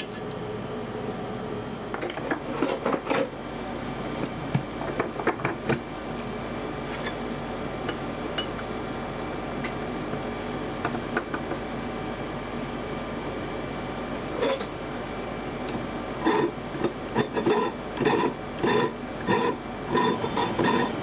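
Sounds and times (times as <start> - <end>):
file rasping on steel blade: 16.2 - 21.0.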